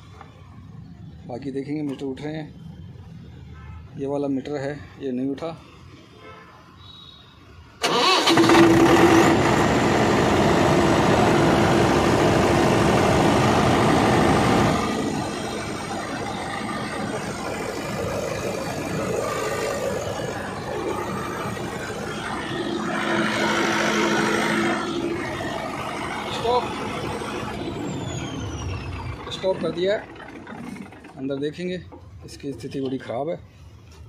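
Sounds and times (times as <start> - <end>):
diesel generator engine running: 7.8 - 32.9.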